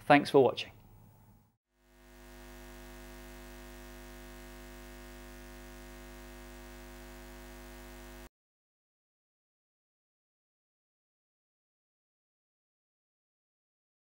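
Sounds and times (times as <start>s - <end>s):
faint hum of held tones: 1.0s - 8.3s.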